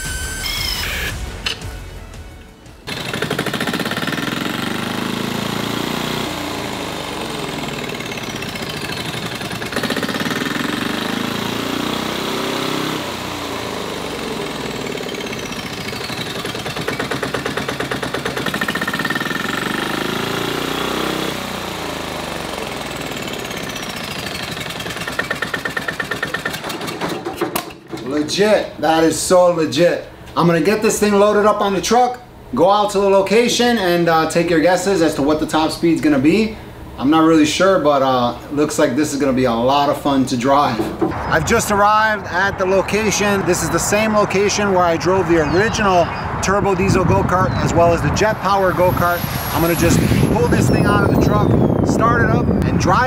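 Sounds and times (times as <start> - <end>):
electronic music with pulsing beat: 0.0 - 2.9.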